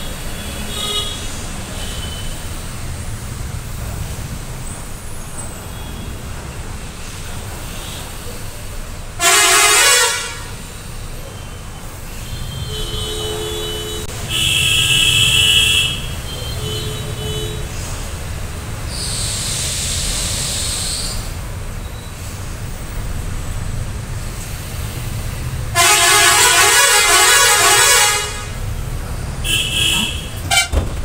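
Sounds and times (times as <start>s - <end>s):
vehicle horns honking: 0.0s - 2.4s, 9.2s - 10.7s, 12.2s - 17.8s, 25.7s - 28.8s, 29.4s - 31.0s
road traffic rumble: 0.0s - 31.0s.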